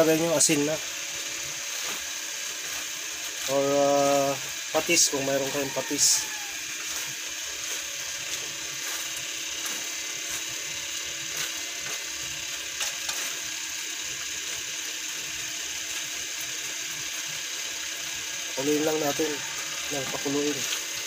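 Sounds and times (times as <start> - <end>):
wooden spatula scraping a wok: 0.0 - 3.6, 4.4 - 14.7
sauce simmering hiss: 0.0 - 21.0.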